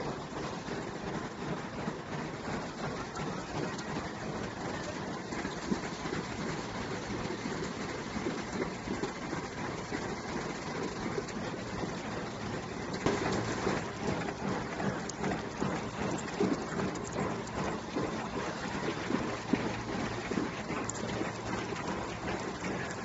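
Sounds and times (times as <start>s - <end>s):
machines clattering: 12.9s - 23.0s.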